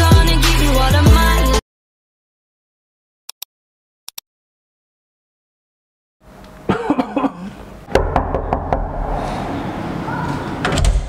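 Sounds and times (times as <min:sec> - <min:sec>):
knocking on a door: 0:07.9 - 0:08.9.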